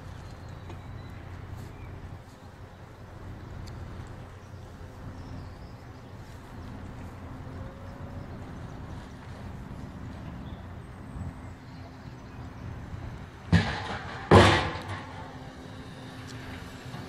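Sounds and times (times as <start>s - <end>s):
engine running: 0.0s - 17.0s
loud metal bangs: 13.4s - 16.2s.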